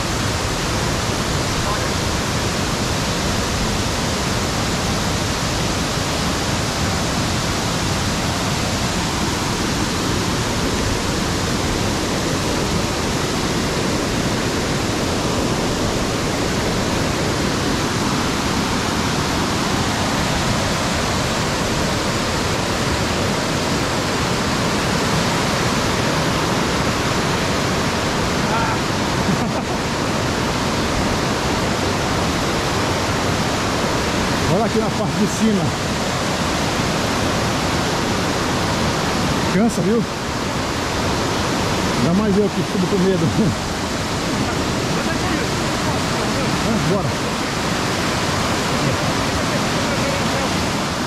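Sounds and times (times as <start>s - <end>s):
waterfall roaring: 0.0s - 51.0s.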